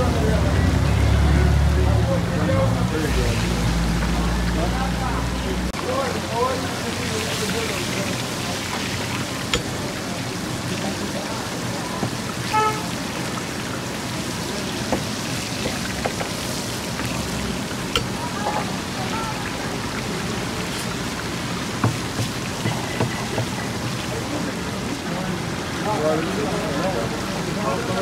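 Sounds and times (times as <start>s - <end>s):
patties sizzling in oil: 5.8s - 24.8s.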